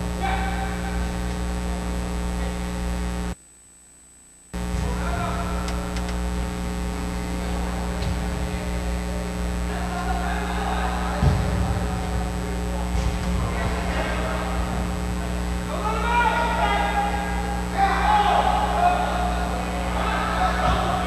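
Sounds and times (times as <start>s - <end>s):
electrical mains hum: 0.0s - 21.0s
light clicks: 5.6s - 6.2s.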